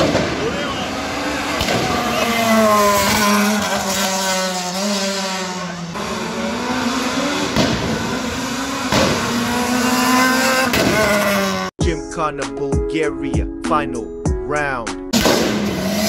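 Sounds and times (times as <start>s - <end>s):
car engine accelerating: 0.0s - 11.7s, 15.2s - 16.0s.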